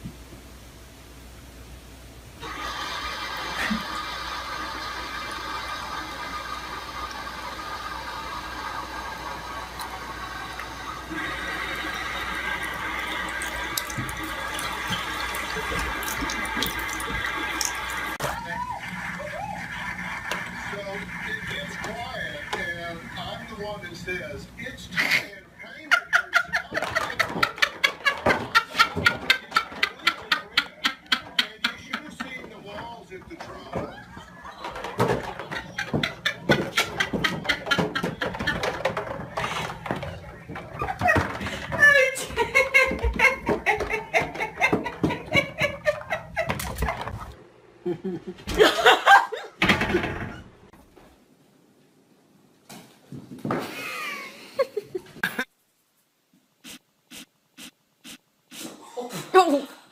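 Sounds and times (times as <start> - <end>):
water running into a sink: 2.4 - 23.8.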